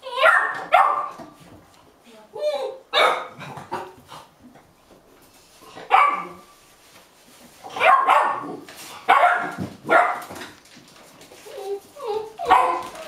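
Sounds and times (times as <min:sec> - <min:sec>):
puppies barking: 0:00.0 - 0:01.2, 0:02.9 - 0:03.4, 0:05.9 - 0:06.4, 0:07.7 - 0:10.3, 0:12.0 - 0:13.0.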